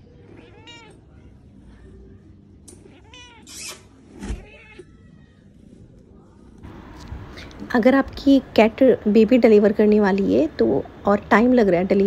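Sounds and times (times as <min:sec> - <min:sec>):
cat meowing: 0:00.2 - 0:01.3, 0:02.7 - 0:05.3.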